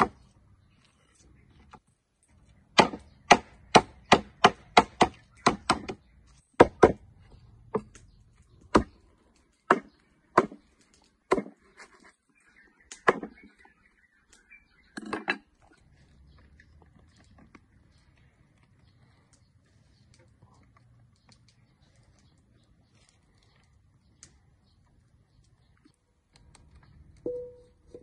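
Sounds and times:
cleaver chopping on wooden block: 2.8 - 6.0, 9.7 - 10.6, 13.0 - 13.3.

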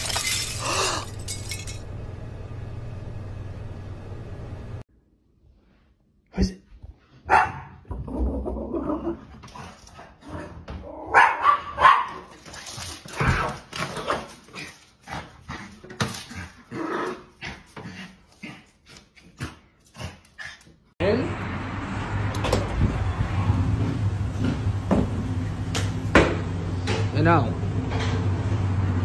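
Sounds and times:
small dog barking: 7.3 - 7.8, 11.1 - 12.3.

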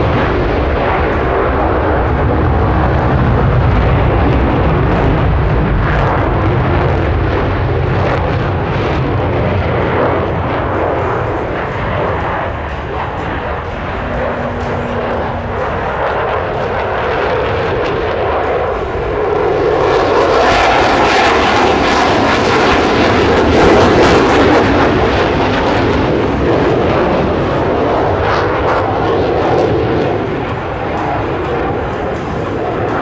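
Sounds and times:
jets flying past: 7.0 - 29.2.

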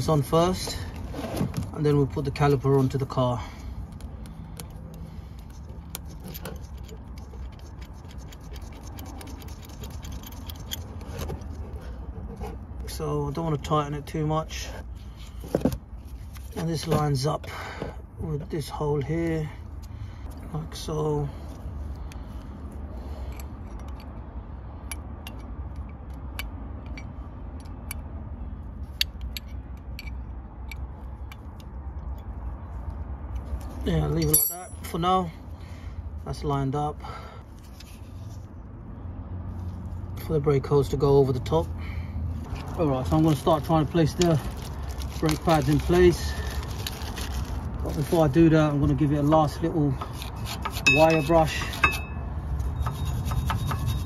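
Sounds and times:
metallic clicks and scratches: 3.8 - 12.6, 50.0 - 54.0
spanner clicking on nut: 28.9 - 32.3.

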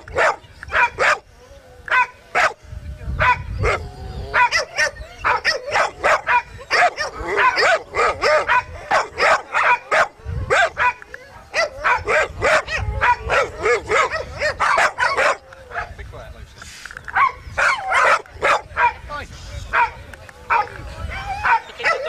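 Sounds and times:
dogs barking: 0.0 - 1.3, 1.9 - 2.6, 3.2 - 16.0, 17.1 - 19.1, 19.7 - 22.0.

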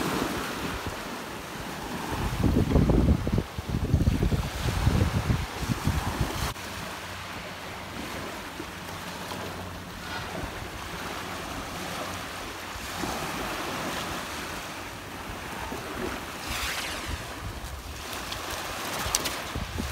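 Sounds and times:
wind buffeting microphone: 0.0 - 6.6, 10.0 - 19.9
waves washing up a pebble shore: 10.0 - 14.6, 15.2 - 19.9.

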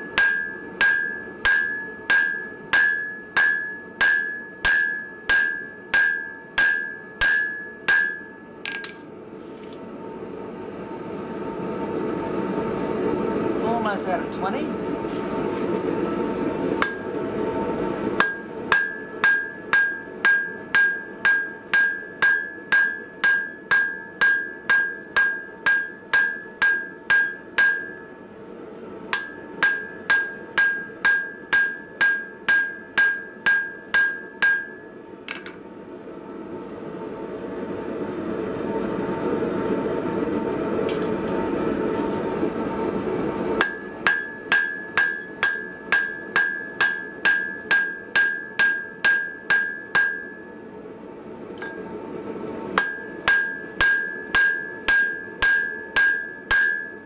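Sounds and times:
hammer blows on anvil: 0.0 - 9.0, 18.2 - 28.0, 29.1 - 35.6, 43.6 - 50.6, 52.8 - 57.0.

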